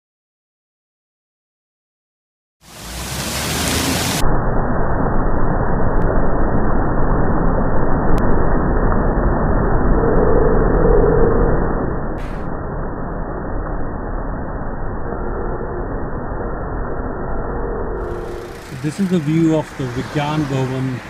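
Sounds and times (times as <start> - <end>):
fountain water rushing: 2.6 - 4.2, 18.2 - 21.0.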